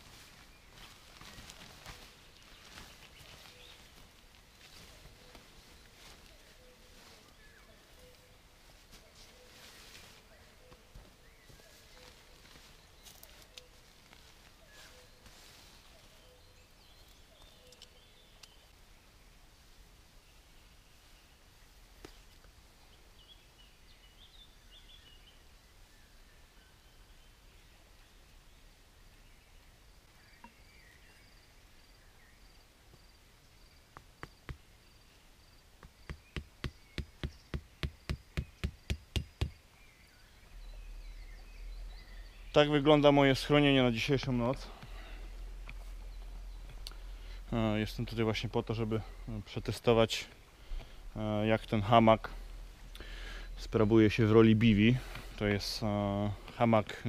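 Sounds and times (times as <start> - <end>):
faint high bird chirps: 14.6 - 18.8
stake hammered into ground: 35.8 - 39.6.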